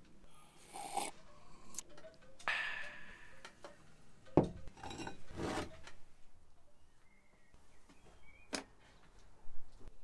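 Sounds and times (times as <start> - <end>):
ceramic mug set on stone: 4.4 - 5.6
mug scraping on stone: 4.8 - 5.8.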